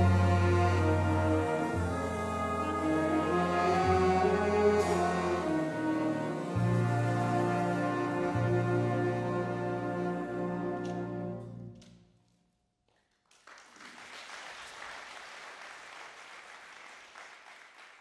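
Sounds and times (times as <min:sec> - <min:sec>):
big band final chord: 0:00.0 - 0:11.5
audience applauding: 0:13.1 - 0:18.0.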